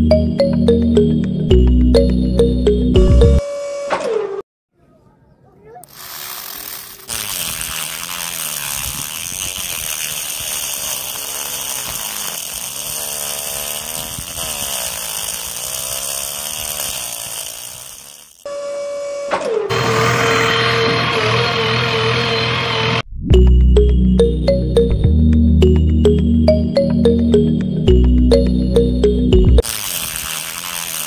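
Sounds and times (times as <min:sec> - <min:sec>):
toy motor whirring: 0:05.8 - 0:18.6, 0:29.6 - 0:31.0.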